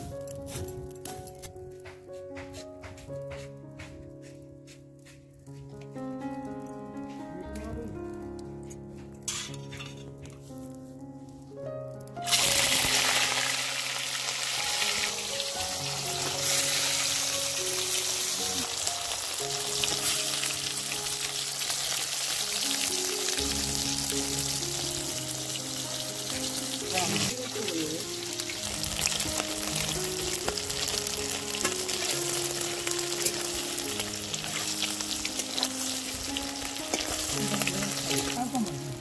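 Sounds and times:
soft background music: 0:00.0 - 0:39.0
metal spatula scraping a pan: 0:09.3 - 0:10.2
food sizzling in hot oil: 0:12.2 - 0:39.0.

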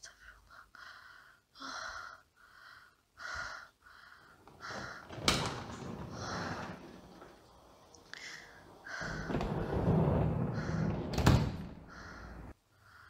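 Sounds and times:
breathy gasps: 0:11.8 - 0:13.0.

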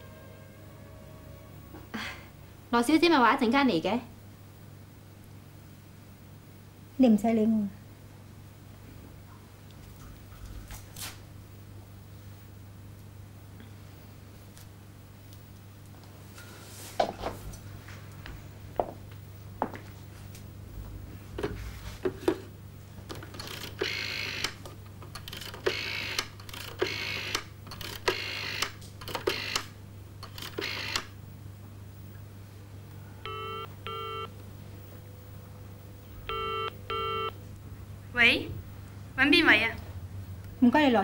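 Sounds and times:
rotary telephone dial whirring: 0:23.1 - 0:31.1
telephone ringback beeps: 0:33.3 - 0:34.3, 0:36.3 - 0:37.4.

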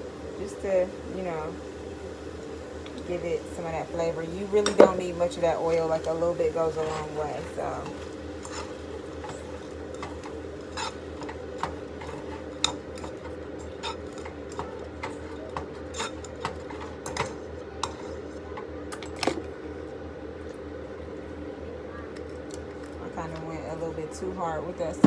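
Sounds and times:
steady low hum: 0:00.0 - 0:25.0
utensil scraping in pot: 0:04.5 - 0:18.3.

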